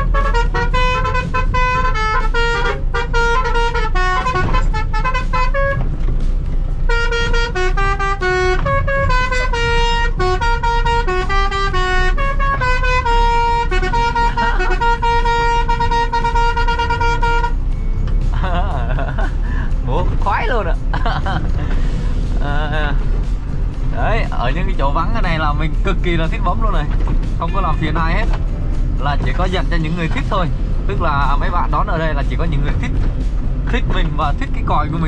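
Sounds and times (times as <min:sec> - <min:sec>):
musical truck horn tune: 0:00.0 - 0:19.8
truck engine and road noise: 0:00.0 - 0:35.0.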